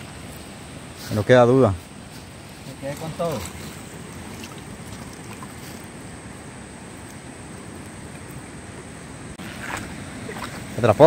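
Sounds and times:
river water washing: 0.0 - 11.0
net splashing in water: 2.8 - 5.9, 9.4 - 10.8.

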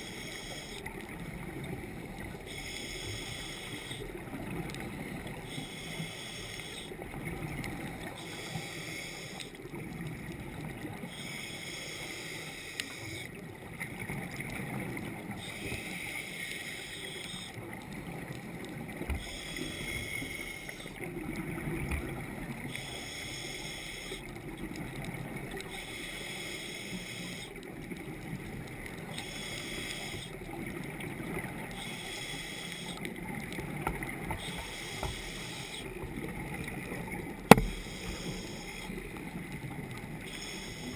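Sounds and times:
underwater hiss: 0.0 - 0.9, 2.1 - 4.3, 5.3 - 7.0, 7.9 - 9.6, 11.0 - 13.4, 15.3 - 21.0, 22.6 - 24.4, 25.6 - 27.7, 29.0 - 30.5, 31.5 - 33.1, 34.0 - 36.6, 37.4 - 39.3, 39.9 - 40.9
muffled underwater rumble: 0.0 - 40.9.

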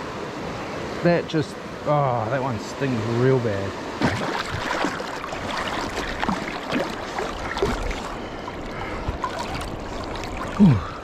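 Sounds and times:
river water sloshing: 1.6 - 11.0
small splashes: 4.0 - 11.0.

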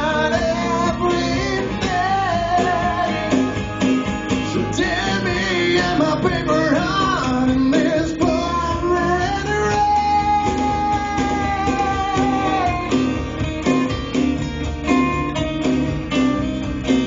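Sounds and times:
person singing wordless melody: 0.0 - 3.6, 4.4 - 13.2
electric bass: 0.0 - 17.0
strummed acoustic guitars: 0.0 - 17.0.

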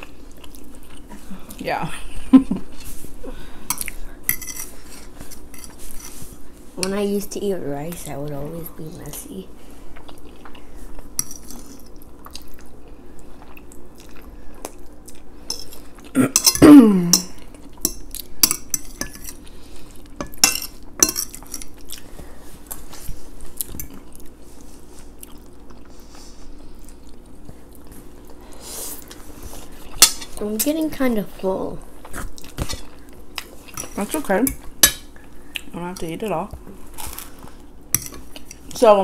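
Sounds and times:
chewing: 0.0 - 1.3, 9.9 - 16.2, 21.2 - 29.8, 32.0 - 33.9.

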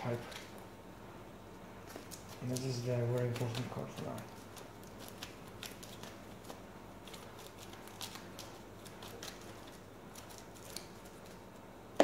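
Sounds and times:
cards clicking and rustling: 1.8 - 11.4.

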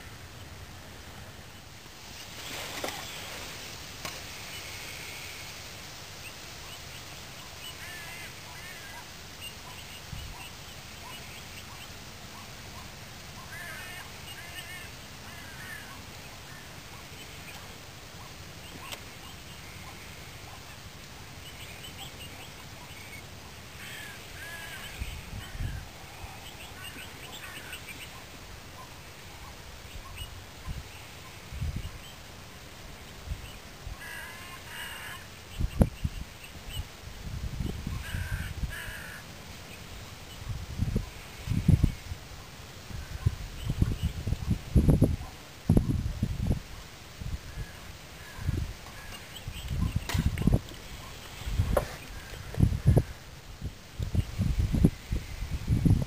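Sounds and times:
steady outdoor hiss: 0.0 - 56.0
bird chirping: 9.4 - 15.0.

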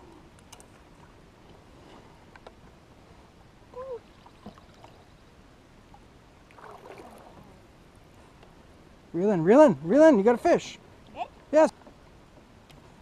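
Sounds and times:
soft splash: 6.5 - 7.6.

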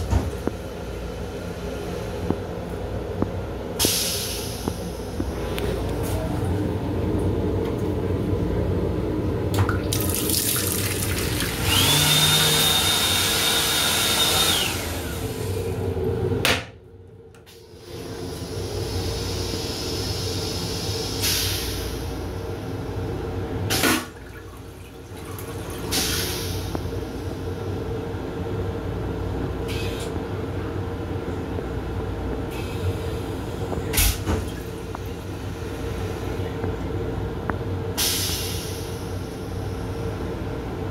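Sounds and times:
railcar running noise: 0.0 - 9.7, 14.5 - 40.9
toilet bowl rinsing: 9.5 - 12.7, 23.7 - 26.6
washbasin fixtures hissing: 9.8 - 15.5.

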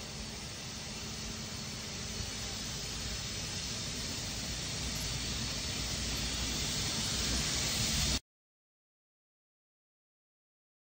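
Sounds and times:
electric locomotive rolling along track: 0.0 - 8.2.

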